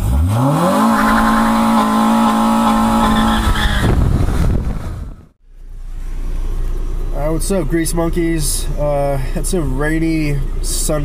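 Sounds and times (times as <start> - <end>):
car engine revving: 0.0 - 8.0.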